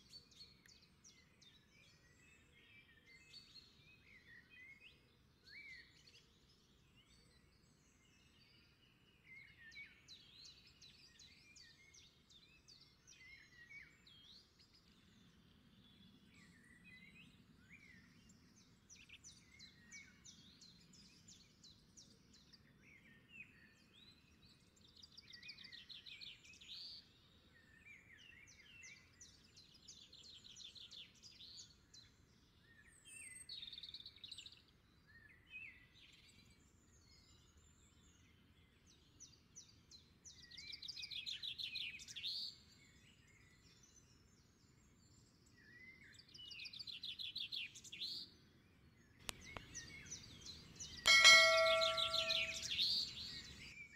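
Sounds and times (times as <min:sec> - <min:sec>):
birds chirping and warbling: 0:49.3 - 0:53.6
rapid bird trills: 0:51.1 - 0:52.8.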